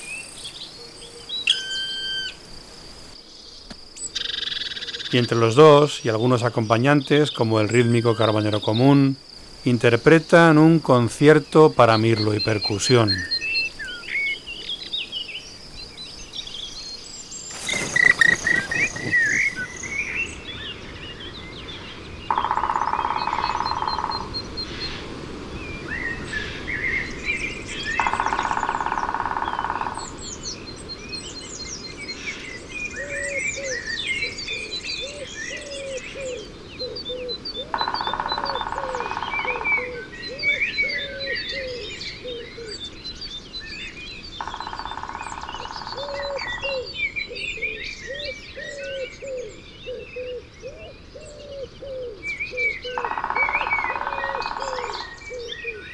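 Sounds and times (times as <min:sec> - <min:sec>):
blackbird fluty song: 0:00.0 - 0:02.4, 0:03.1 - 0:55.9
woodpecker drumming on tree trunk: 0:17.5 - 0:20.2, 0:22.3 - 0:24.5, 0:28.0 - 0:30.2, 0:37.7 - 0:39.8, 0:44.4 - 0:46.6, 0:53.0 - 0:55.0
great tit repeated notes: 0:22.3 - 0:24.4.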